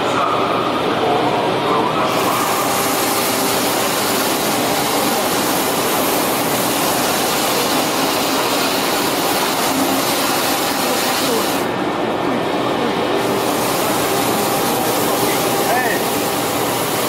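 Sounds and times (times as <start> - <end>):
brush sanding machine hissing: 2.1 - 11.7, 13.4 - 17.0.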